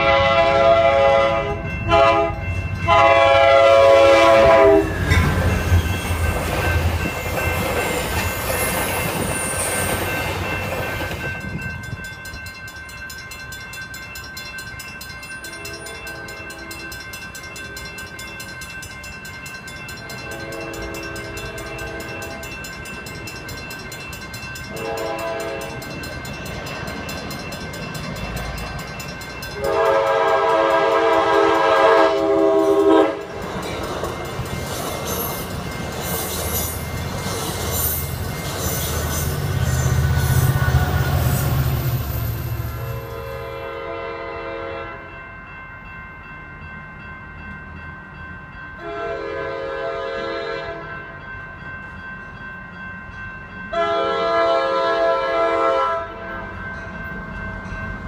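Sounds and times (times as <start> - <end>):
train air horn blasts: 0.0 - 5.0, 24.7 - 25.8, 29.6 - 33.3, 42.8 - 45.1, 48.8 - 50.9, 53.7 - 56.3
distant train horn: 0.0 - 5.2, 20.3 - 22.5, 24.7 - 25.8, 29.6 - 33.4, 42.7 - 45.2, 48.8 - 51.0, 53.7 - 56.4
train rushing past: 0.0 - 12.6, 19.3 - 45.2.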